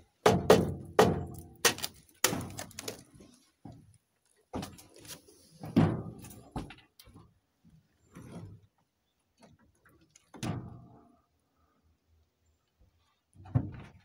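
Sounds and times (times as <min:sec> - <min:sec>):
thumps and scrapes in truck bed: 0:04.5 - 0:07.2, 0:13.4 - 0:14.0.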